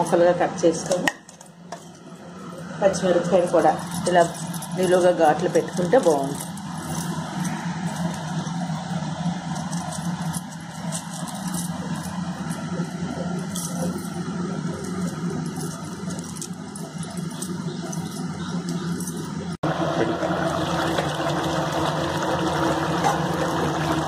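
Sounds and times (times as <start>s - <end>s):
steady low hum: 0.0s - 24.0s
bangles and steel plate clinking: 1.2s - 19.6s.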